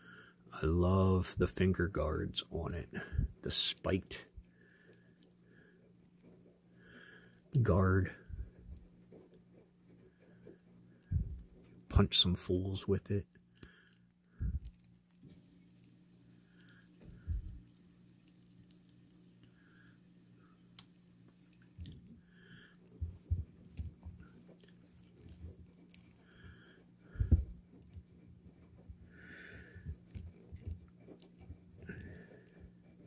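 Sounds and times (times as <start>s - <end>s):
faint steady hum: 0.0s - 33.0s
plastic parts clicking and rubbing: 20.6s - 33.0s.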